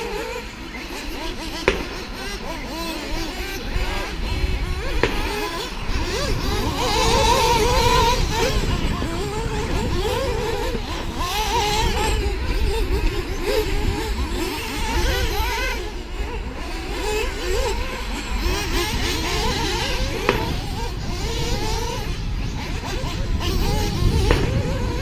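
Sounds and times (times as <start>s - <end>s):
model car motors whining: 0.0s - 25.0s
wind rumble on microphone: 0.0s - 25.0s.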